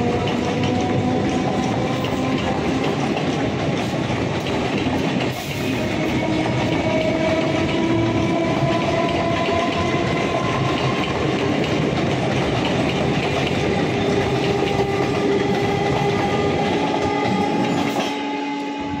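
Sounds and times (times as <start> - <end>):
train wheels clattering over rail joints: 0.0 - 18.3
train whining tones: 0.0 - 19.0.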